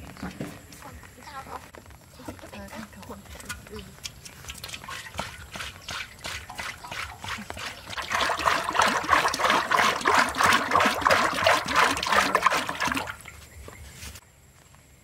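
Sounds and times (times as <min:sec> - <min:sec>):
oil pouring into metal wok: 0:06.2 - 0:13.2.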